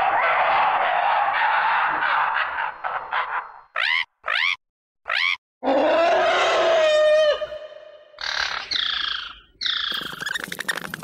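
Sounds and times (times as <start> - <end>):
creature cries: 3.8 - 7.9.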